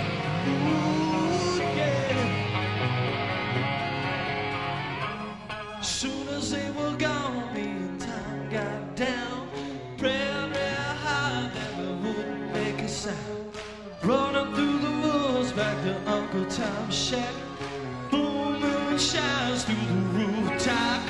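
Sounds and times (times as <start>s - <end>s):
man singing: 0.0s - 2.9s, 5.0s - 21.0s
hard rock band playing: 0.0s - 7.0s.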